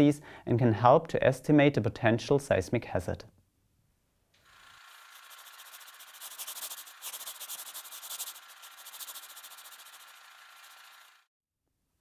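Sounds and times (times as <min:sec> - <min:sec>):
pen scratching on paper: 0:04.8 - 0:11.0.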